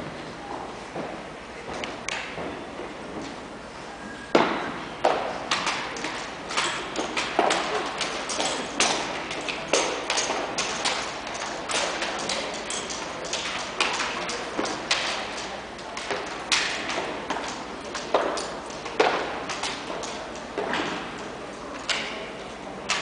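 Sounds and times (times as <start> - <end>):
rifles slapped into hands: 5.5 - 21.0.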